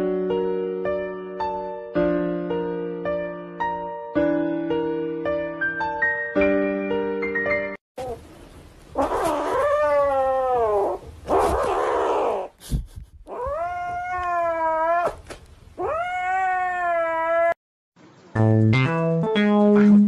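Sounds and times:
kitten yowling: 0:09.0 - 0:12.5, 0:13.3 - 0:15.2, 0:15.8 - 0:17.6.

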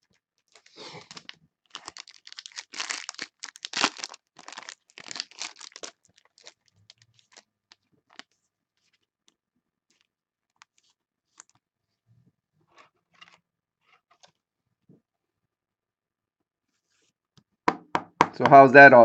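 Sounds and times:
card pack wrapper tearing: 0:00.5 - 0:07.4.

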